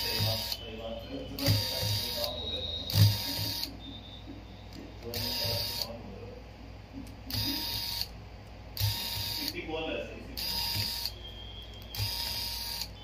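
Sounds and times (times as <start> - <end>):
electric screwdriver whirring: 2.9 - 3.7, 5.1 - 5.9, 7.3 - 8.1, 8.8 - 9.6, 10.4 - 11.1, 11.9 - 12.9.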